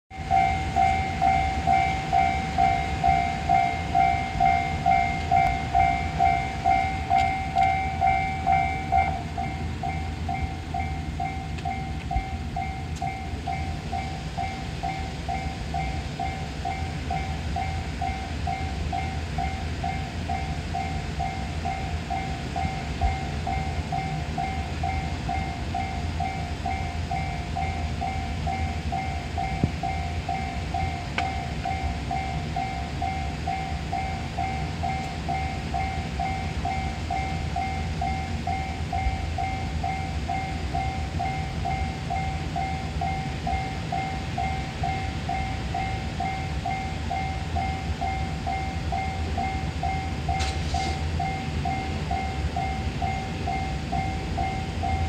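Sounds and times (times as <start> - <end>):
railroad crossing warning bell: 0.1 - 55.0.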